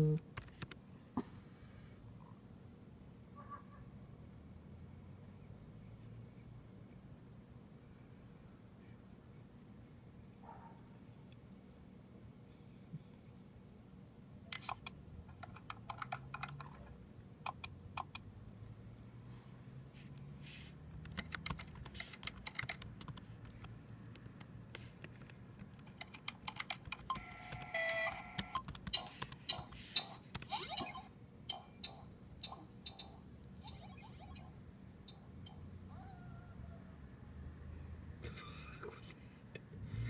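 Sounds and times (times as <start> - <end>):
laptop keyboard typing: 0.0 - 0.8, 14.5 - 18.3, 20.7 - 31.0.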